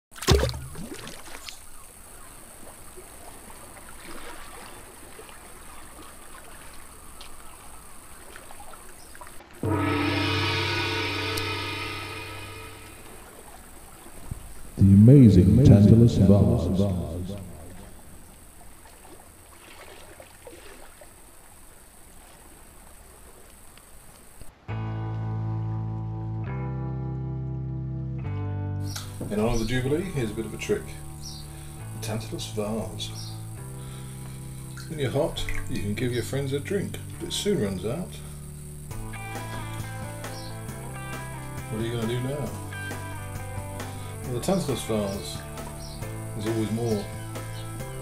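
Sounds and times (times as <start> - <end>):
faint ticks and rustles: 17.8 - 24.5
steady hiss: 28.9 - 39.1.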